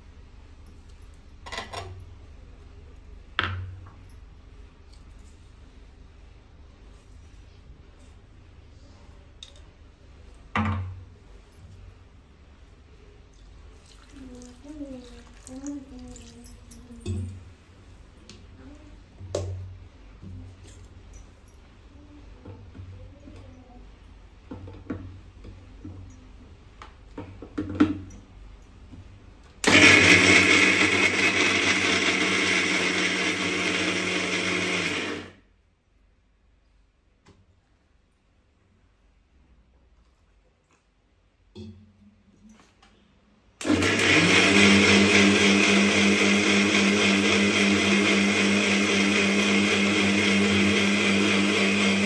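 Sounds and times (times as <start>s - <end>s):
mixer grinder grinding: 29.6s - 35.4s, 43.6s - 52.0s.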